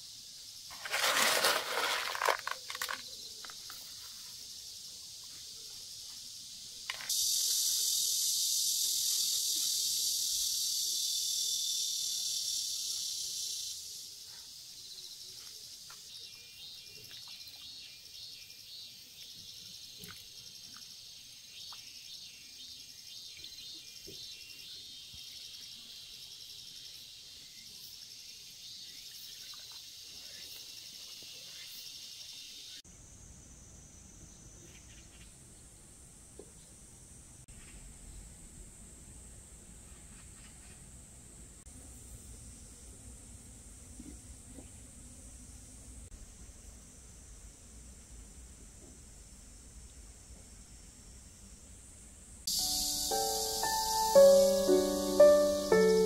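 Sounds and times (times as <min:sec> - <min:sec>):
insects buzzing: 0:00.0 - 0:35.3, 0:52.4 - 0:56.0
insects chirping: 0:00.0 - 0:41.6, 0:44.8 - 0:56.0
sharp sounds: 0:52.5 - 0:56.0.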